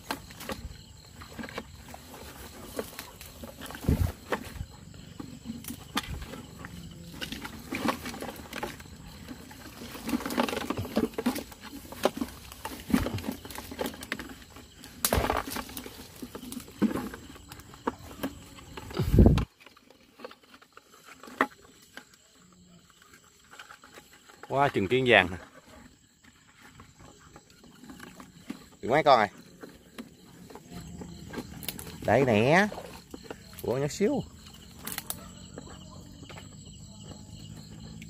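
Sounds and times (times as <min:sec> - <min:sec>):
twigs and branches snapping: 0:15.0 - 0:15.8, 0:34.8 - 0:35.2.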